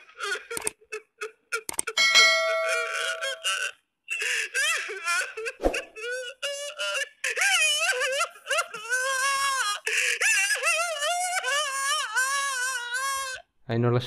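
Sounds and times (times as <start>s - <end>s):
man wailing and crying: 0.0s - 13.5s
bell-like chime: 2.0s - 3.2s.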